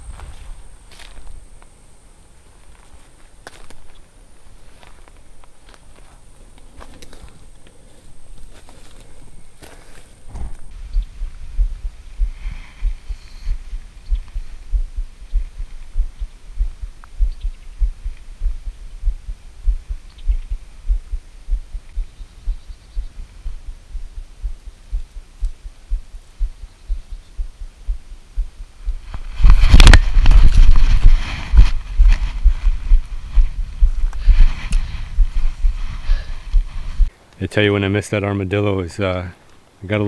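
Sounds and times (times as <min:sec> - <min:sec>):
footfalls running through dry grass: 0:00.0 - 0:01.4, 0:02.5 - 0:18.0, 0:28.8 - 0:37.1.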